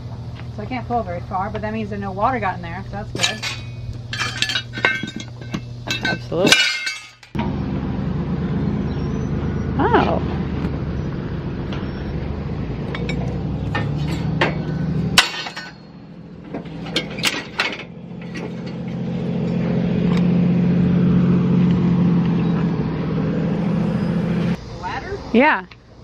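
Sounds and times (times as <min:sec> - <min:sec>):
metallic clinks: 0:03.2 - 0:07.4.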